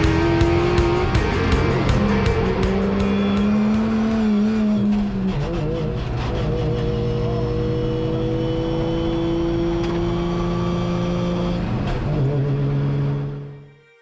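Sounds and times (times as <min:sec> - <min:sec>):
car engine running: 0:00.0 - 0:13.6.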